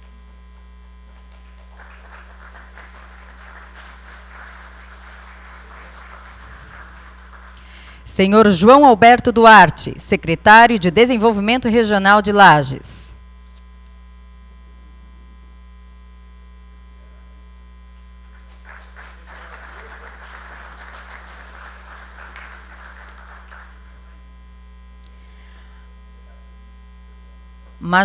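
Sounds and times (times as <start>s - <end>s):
electrical mains hum: 0.0s - 28.0s
faint audience applause: 1.1s - 8.1s, 18.2s - 24.2s.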